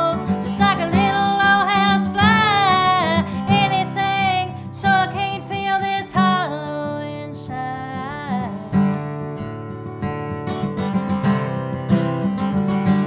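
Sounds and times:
woman singing country song: 0.0s - 9.5s
acoustic guitar strumming: 0.0s - 13.0s.

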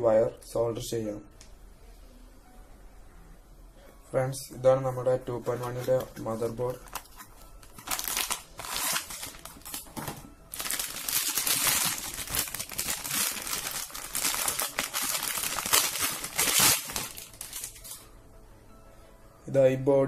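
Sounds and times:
plastic bag crinkling: 5.6s - 18.0s.

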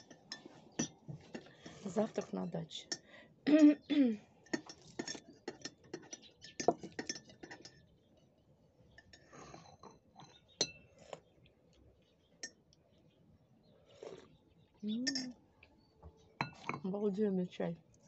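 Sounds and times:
ceramic tableware clinking: 0.0s - 3.0s, 4.4s - 7.9s, 15.0s - 15.4s, 16.4s - 16.9s.

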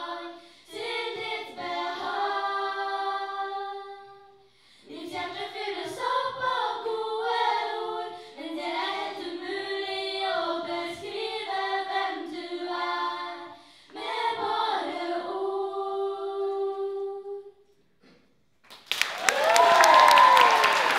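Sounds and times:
women singing a cappella: 0.0s - 17.6s
audience applause: 18.7s - 20.9s.

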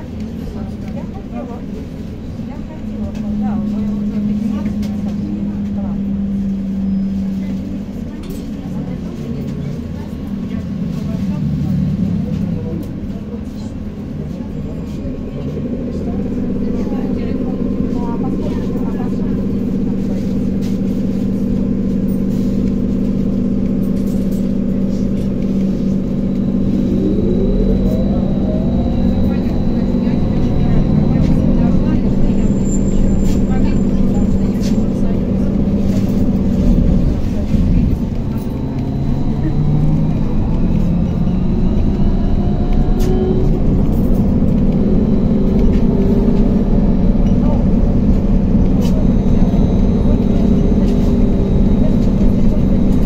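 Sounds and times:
traction motor whine rising: 21.5s - 53.0s.

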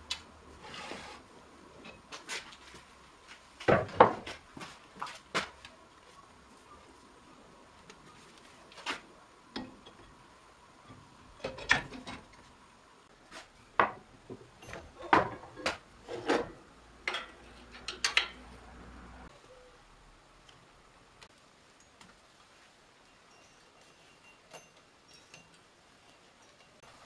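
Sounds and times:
workshop parts clunking and knocking: 3.6s - 5.6s, 9.6s - 10.2s, 10.8s - 12.5s, 13.3s - 18.5s.

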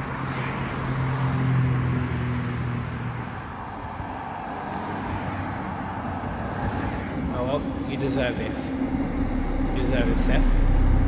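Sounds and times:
cars driving past: 0.0s - 11.0s
low engine hum: 5.1s - 11.0s.

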